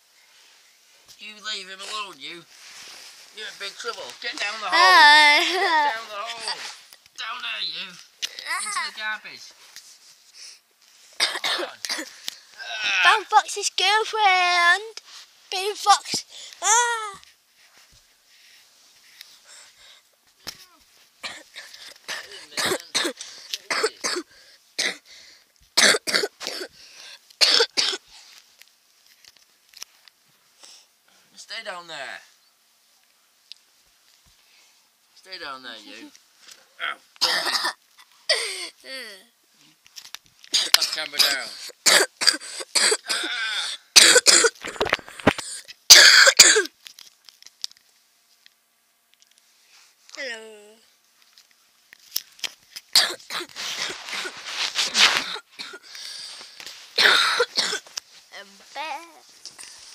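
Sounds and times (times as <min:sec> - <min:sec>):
person coughing: 0:11.2 - 0:12.1, 0:21.2 - 0:25.0, 0:25.8 - 0:26.7, 0:27.4 - 0:28.0, 0:36.8 - 0:38.7, 0:40.6 - 0:45.0, 0:45.9 - 0:46.7, 0:53.0 - 0:53.5, 0:57.0 - 0:57.9.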